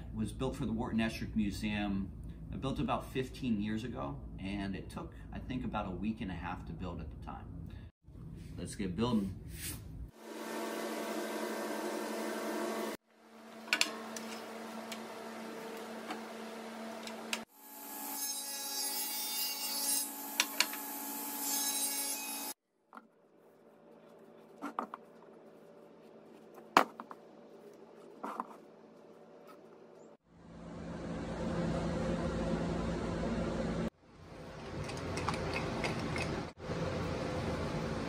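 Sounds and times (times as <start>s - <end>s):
table saw cutting wood: 10.2s - 22.6s
wood being handled and rubbed: 23.0s - 30.1s.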